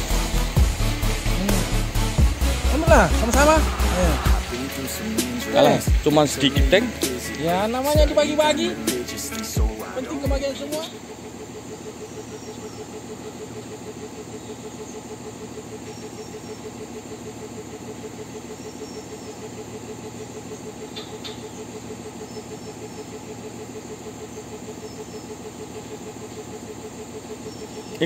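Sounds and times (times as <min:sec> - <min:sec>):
engine idling: 0:00.0 - 0:28.0
faint clicks: 0:09.2 - 0:09.6.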